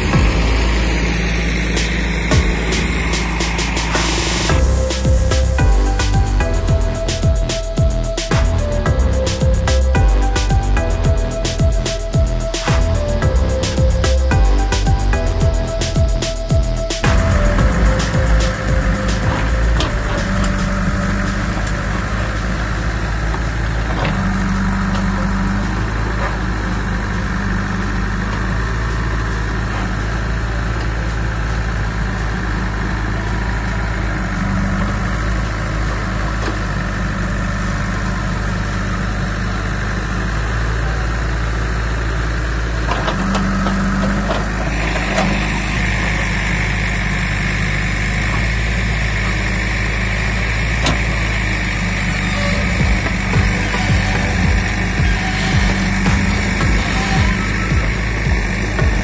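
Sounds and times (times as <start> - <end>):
high whine: 0.0 - 32.4, 51.9 - 59.0
diesel engine running: 0.0 - 59.0.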